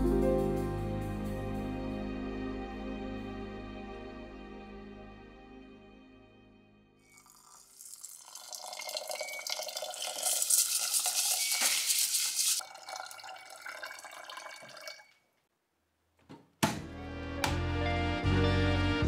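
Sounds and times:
tap water running into metal pot: 7.1 - 15.2
hands swishing rice grains: 10.2 - 12.6.

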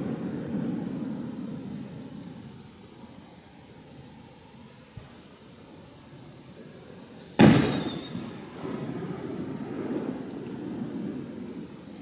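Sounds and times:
firework shell boom: 7.4 - 8.9.

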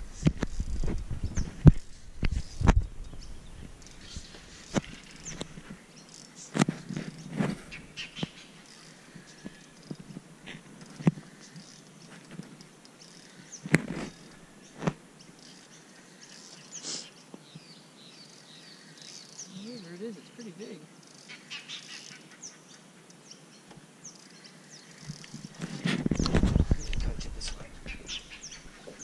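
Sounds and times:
faint bird chirps: 13.0 - 29.0.

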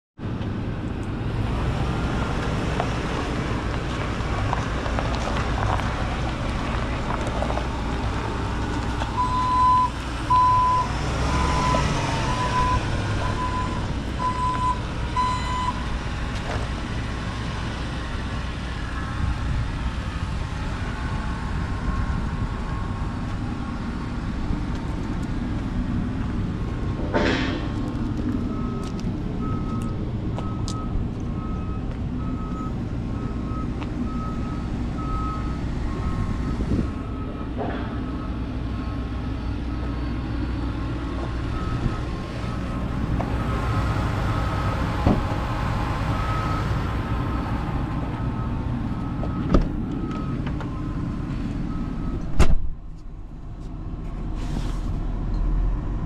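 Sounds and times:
low outdoor rumble: 0.2 - 56.0
reverse alarm beeping: 9.2 - 15.8.

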